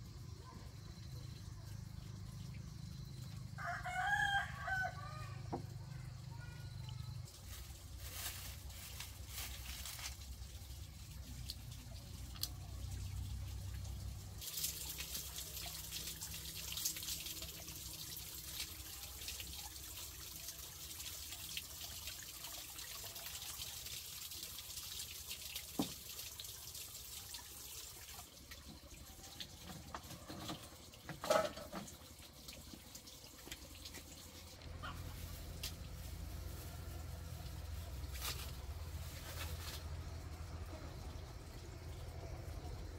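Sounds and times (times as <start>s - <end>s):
water running: 6.7s - 42.9s.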